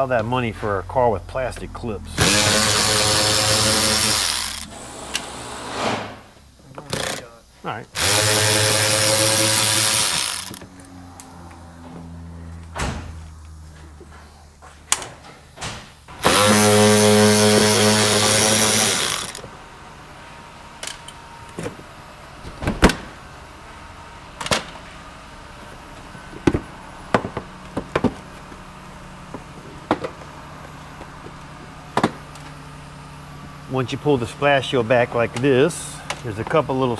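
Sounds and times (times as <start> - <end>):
cordless power tool whirring: 2.2 - 5.8, 6.8 - 7.3, 8.0 - 11.0, 16.1 - 19.6
clicks and knocks of tools: 14.9 - 15.8.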